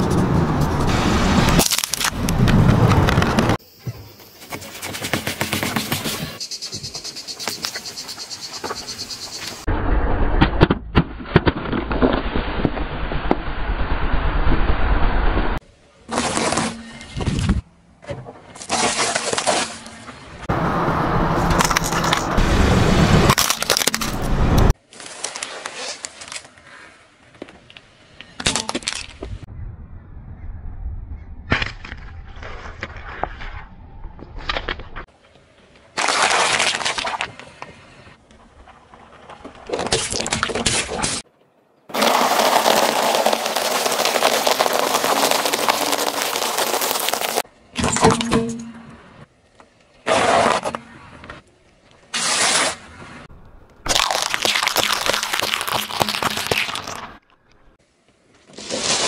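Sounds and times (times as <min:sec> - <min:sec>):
soft crackling under tyre: 0:37.3 - 0:39.8, 0:41.9 - 0:47.4
tyre crushing plastic toy: 0:41.9 - 0:47.4, 0:53.9 - 0:57.2.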